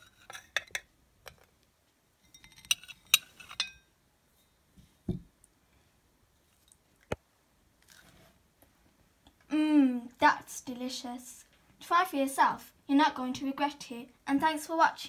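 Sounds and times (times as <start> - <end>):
metal spatula clinking on plate: 2.3 - 3.8.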